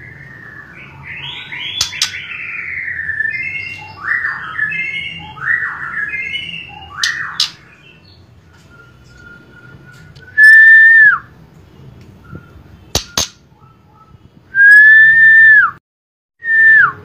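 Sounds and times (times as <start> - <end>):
bird whistling: 0.0 - 11.3, 12.2 - 15.8
sharp clicks: 12.9 - 13.4.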